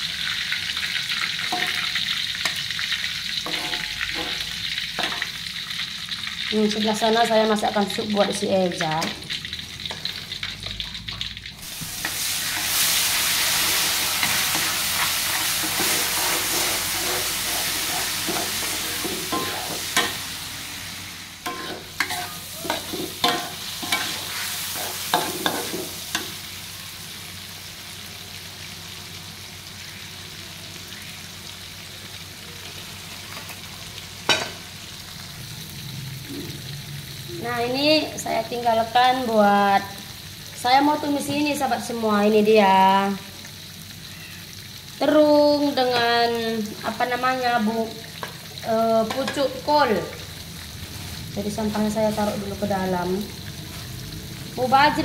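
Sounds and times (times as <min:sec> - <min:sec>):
tomatoes sizzling in oil: 0:00.0 - 0:55.0
metal spatula scraping wok: 0:01.4 - 0:05.4, 0:11.6 - 0:26.4.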